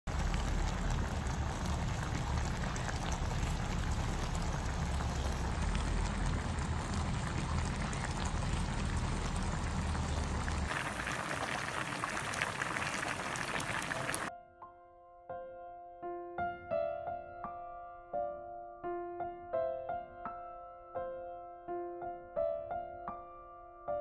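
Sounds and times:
stew bubbling and sizzling: 0.0 - 14.3.

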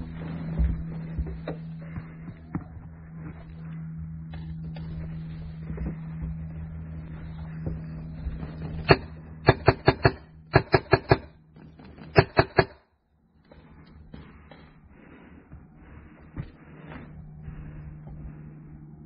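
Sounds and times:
paintball marker firing: 8.8 - 11.4, 12.1 - 12.8.

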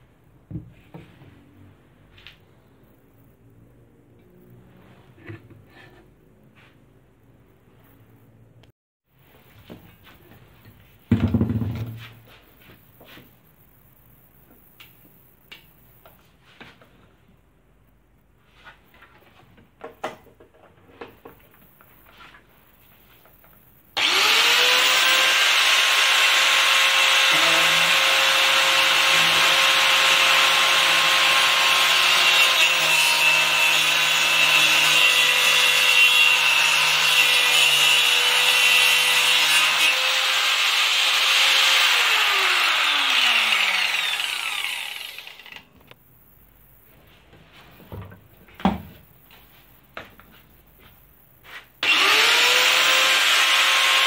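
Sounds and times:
saw blade cutting wood: 24.0 - 45.6, 51.8 - 54.0.

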